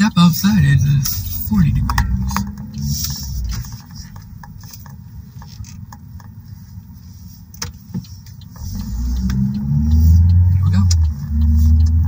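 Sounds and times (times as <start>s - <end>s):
light clicks and creaks: 1.0s - 6.4s.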